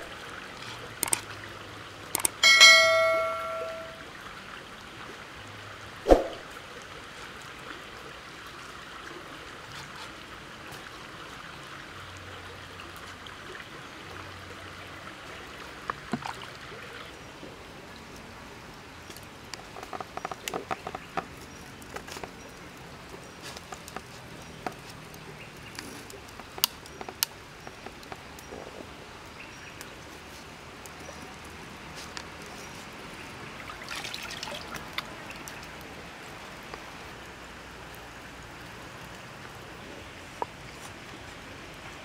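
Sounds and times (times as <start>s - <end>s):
small stream running: 0.0s - 42.0s
sharp clicks and knocks: 2.2s - 3.8s.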